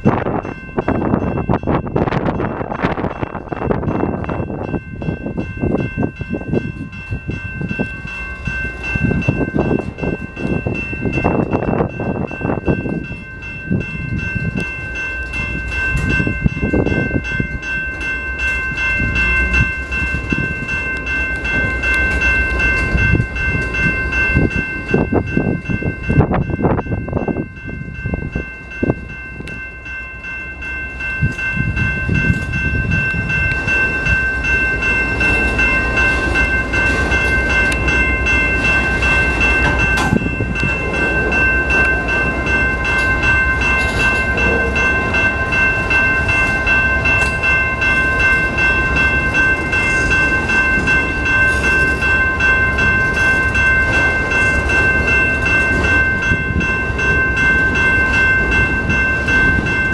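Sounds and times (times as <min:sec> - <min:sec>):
wheels clattering on rails: 0:00.0 - 0:59.9
freight cars rumbling: 0:30.5 - 0:59.9.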